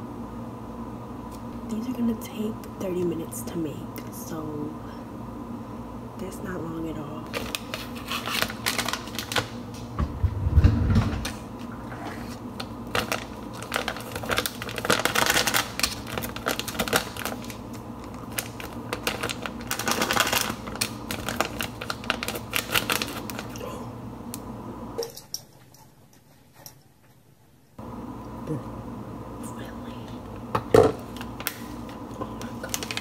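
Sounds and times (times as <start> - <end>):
paper packet crinkling: 7.3 - 9.6, 12.6 - 23.6, 31.4 - 33.0
low thump: 10.0 - 11.2.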